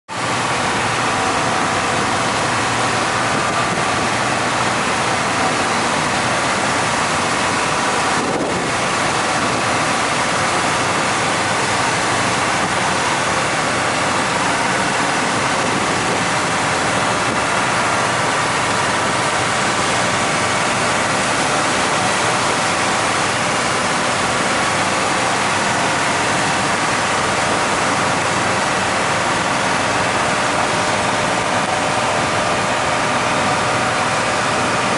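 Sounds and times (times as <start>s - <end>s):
boat engine running: 0.1s - 34.9s
water foaming along hull: 0.1s - 34.9s
wind on microphone: 0.4s - 28.2s.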